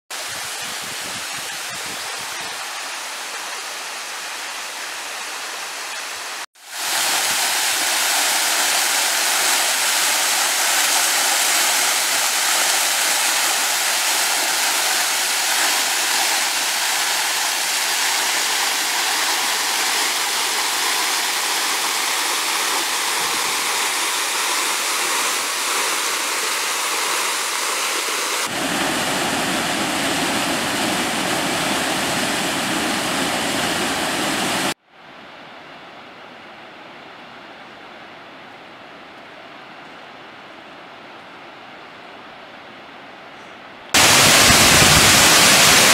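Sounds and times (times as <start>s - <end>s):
waterfall rushing: 0.1s - 34.8s, 44.0s - 45.9s
cascade pouring into pool: 6.5s - 34.8s, 44.0s - 45.9s.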